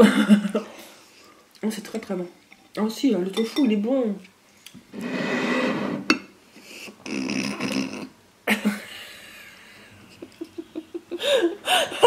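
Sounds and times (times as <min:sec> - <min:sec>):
women laughing: 0:08.5 - 0:12.0.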